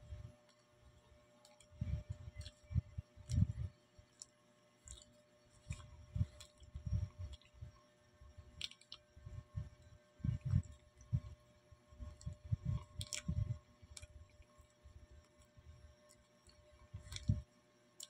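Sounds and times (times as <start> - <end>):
person chewing banana: 2.3 - 7.6, 8.6 - 9.0, 12.0 - 13.4.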